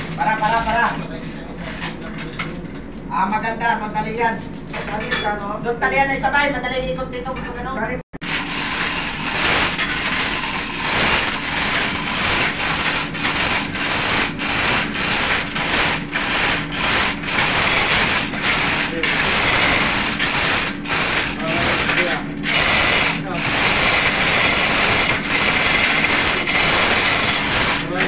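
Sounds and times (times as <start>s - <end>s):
machinery hum: 0.0s - 28.0s
chain hoist ratcheting clatter: 8.2s - 28.0s.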